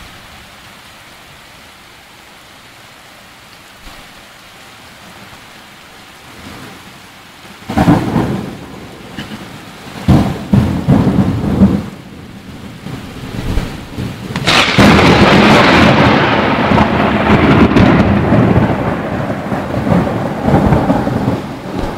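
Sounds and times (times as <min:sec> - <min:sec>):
thunder rumbling: 0:07.6 - 0:21.9.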